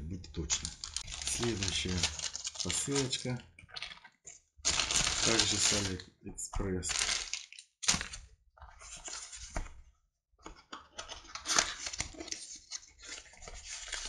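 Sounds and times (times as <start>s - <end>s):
cardboard and plastic crinkling: 0.4s - 6.0s, 6.8s - 8.2s.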